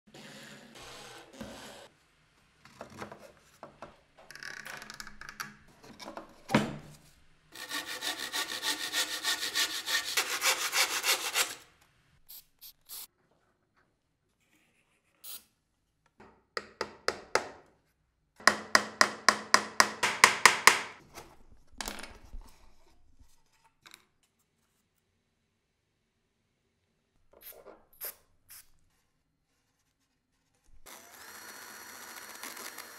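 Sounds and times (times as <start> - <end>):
hand tool strokes on wood: 7.6 - 11.6
aerosol spray can hissing: 12.3 - 13.1.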